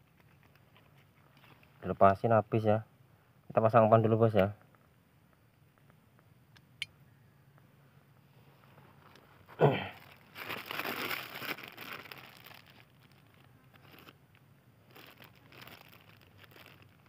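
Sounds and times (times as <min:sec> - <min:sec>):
rustling and crinkling: 0:00.0 - 0:02.2, 0:08.3 - 0:17.0.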